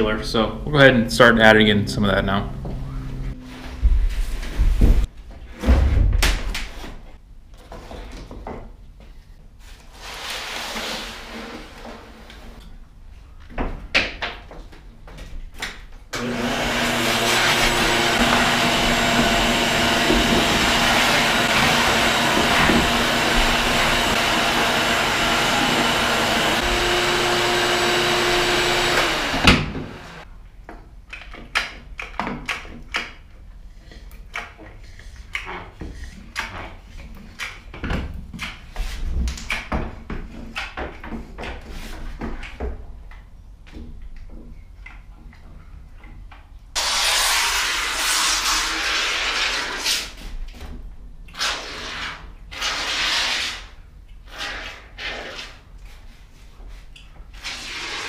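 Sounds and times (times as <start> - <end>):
shop vacuum running: 1.2 - 5.1, 16.2 - 30.2
knocks and scrapes: 1.6 - 9.2, 17.3 - 30.2.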